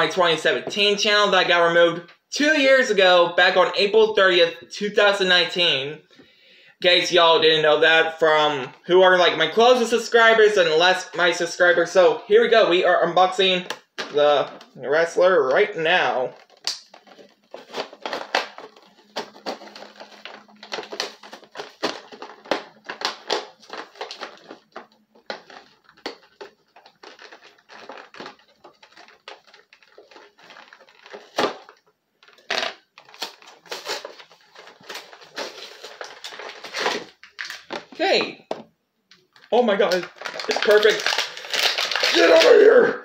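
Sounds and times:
plastic blister pack crinkling: 0:15.5 - 0:38.2, 0:39.1 - 0:42.6.

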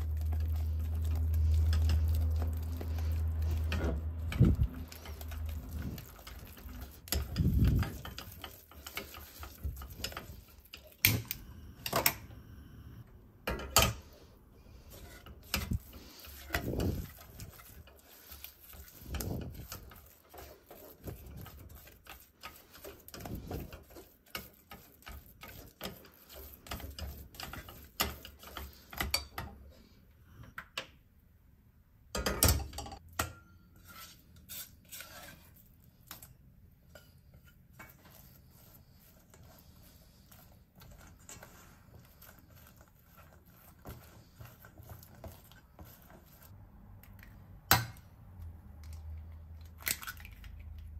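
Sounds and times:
dough scraped into metal bowl: 0:00.0 - 0:11.1, 0:13.8 - 0:30.0, 0:33.6 - 0:46.6
spatula scraping saucepan: 0:00.0 - 0:11.4, 0:13.5 - 0:30.5, 0:33.2 - 0:46.6.

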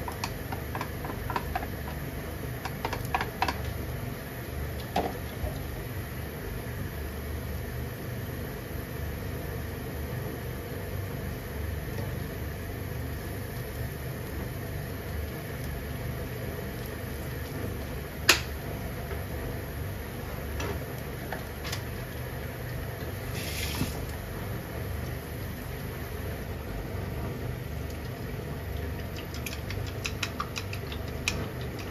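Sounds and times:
kitchen equipment humming: 0:00.0 - 0:31.9
short hiss: 0:23.3 - 0:24.0.

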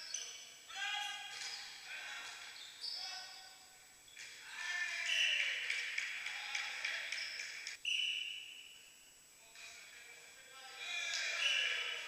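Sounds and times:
shoes squeaking on court: 0:01.1 - 0:03.5, 0:07.1 - 0:08.8
referee's whistle blast: 0:07.8 - 0:08.9.

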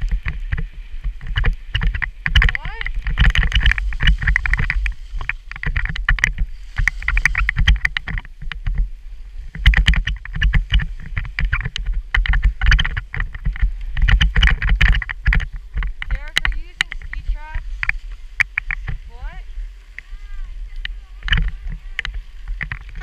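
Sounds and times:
skis scraping over snow: 0:15.4 - 0:23.0.

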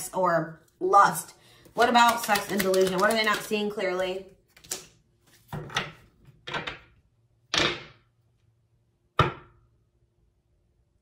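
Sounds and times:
cards slapping on a table: 0:02.0 - 0:03.5.

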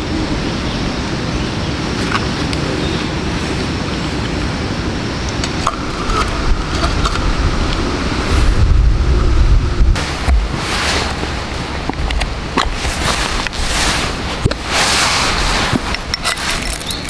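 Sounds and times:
low rumble: 0:04.5 - 0:16.2.

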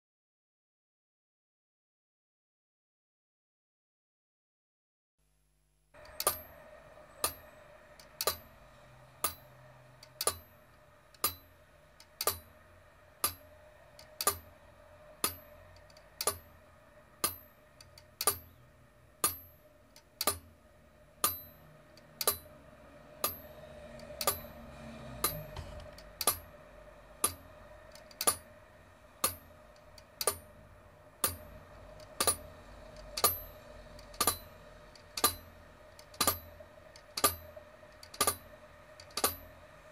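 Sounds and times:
faint steady hum: 0:05.2 - 0:39.9
clock ticking: 0:07.2 - 0:08.5, 0:09.2 - 0:14.6, 0:15.2 - 0:16.6, 0:17.2 - 0:18.5, 0:19.2 - 0:20.5, 0:21.2 - 0:22.6, 0:23.2 - 0:24.6, 0:25.2 - 0:26.5, 0:27.2 - 0:28.6, 0:29.2 - 0:30.6, 0:31.2 - 0:39.5.

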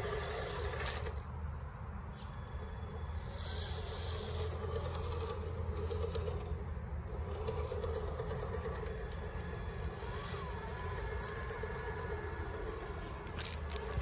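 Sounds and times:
electric motor whine: 0:00.0 - 0:01.2, 0:02.1 - 0:14.0
tyres crunching on rocks: 0:11.4 - 0:14.0.

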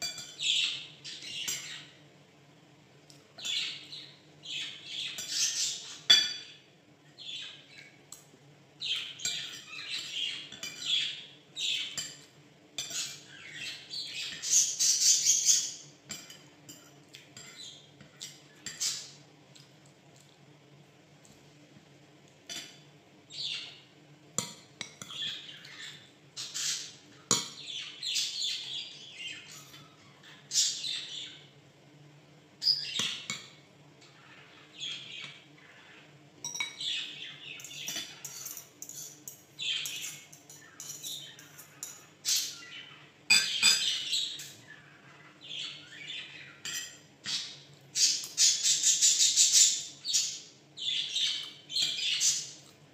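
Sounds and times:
spoon clinking against dish: 0:00.0 - 0:00.6, 0:06.1 - 0:06.6, 0:09.2 - 0:11.0, 0:16.1 - 0:19.0, 0:27.3 - 0:27.7, 0:36.4 - 0:42.6, 0:43.3 - 0:44.6, 0:46.6 - 0:47.0
bird chirping and squawking: 0:03.4 - 0:06.1, 0:12.8 - 0:15.9, 0:25.1 - 0:27.0, 0:27.6 - 0:31.5, 0:34.0 - 0:52.6.

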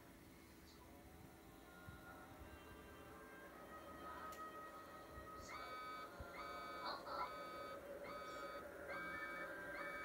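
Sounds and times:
electronic alarm beeping: 0:05.5 - 0:10.0.

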